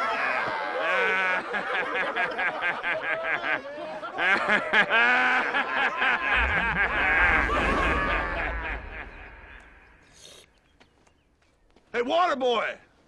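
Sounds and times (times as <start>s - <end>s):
young men laughing: 0.0s - 10.0s
low rumble: 6.3s - 10.2s.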